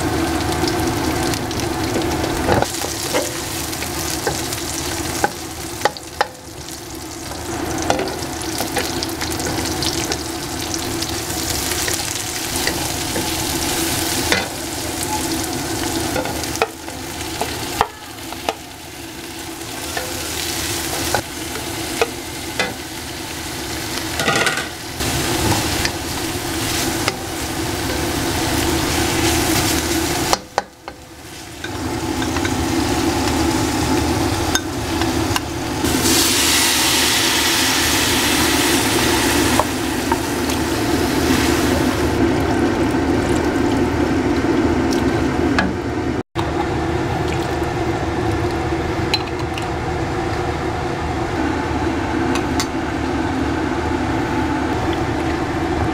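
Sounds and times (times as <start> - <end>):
vegetables sizzling in oil: 0.0 - 45.8
liquid hissing in hot wok: 24.9 - 30.5, 31.1 - 42.2.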